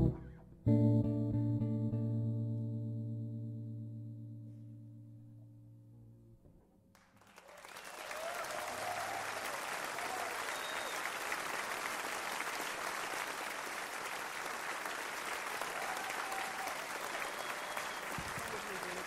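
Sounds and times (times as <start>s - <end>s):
electric bass guitar note: 0.0s - 6.8s
audience applause: 7.0s - 19.0s
audience shouts: 7.5s - 11.0s, 15.6s - 18.9s.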